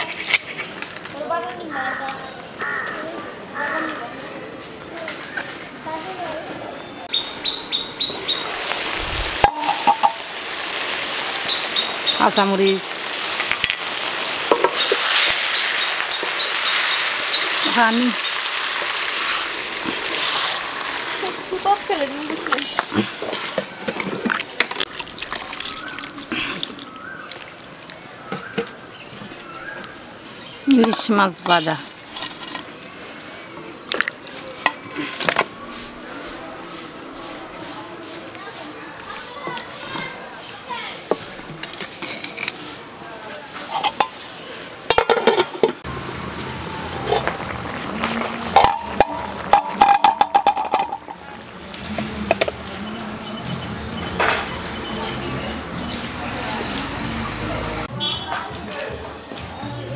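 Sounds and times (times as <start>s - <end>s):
metal pot lid clanking: 9.4s - 10.2s, 44.9s - 45.8s, 48.6s - 51.2s.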